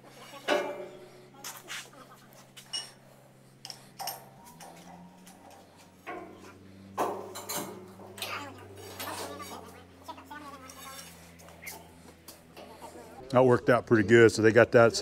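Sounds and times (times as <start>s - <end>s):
low steady hum: 0.0s - 15.0s
metallic clinks of tools: 2.6s - 3.0s.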